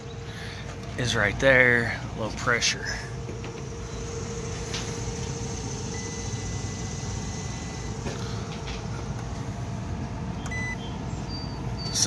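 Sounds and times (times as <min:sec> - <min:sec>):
low background rumble: 0:00.0 - 0:11.9
multimeter beep: 0:05.0 - 0:08.1, 0:10.4 - 0:12.0.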